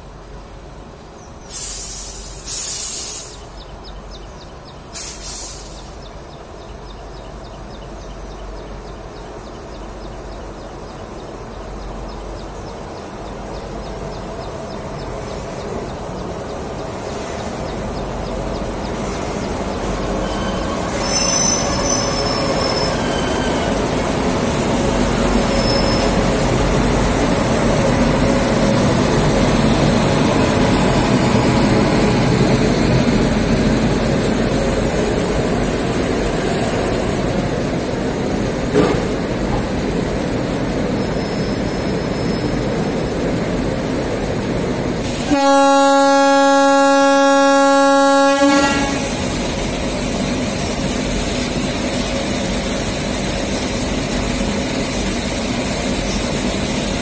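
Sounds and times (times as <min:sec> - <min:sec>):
train wheel and motor rumble: 0:00.0 - 0:57.0
loud hissing rushes: 0:01.4 - 0:03.6, 0:04.9 - 0:06.1, 0:43.5 - 0:45.4, 0:48.8 - 0:57.0
high wheel squeals: 0:20.1 - 0:24.0, 0:25.4 - 0:26.3, 0:41.0 - 0:42.7.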